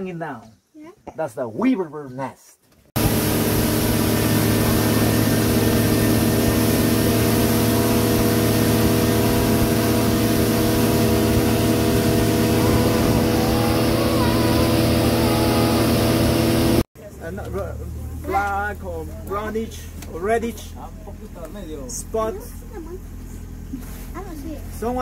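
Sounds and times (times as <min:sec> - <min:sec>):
rush of air and water: 0:03.0 - 0:16.8
boat motor droning: 0:03.0 - 0:25.0.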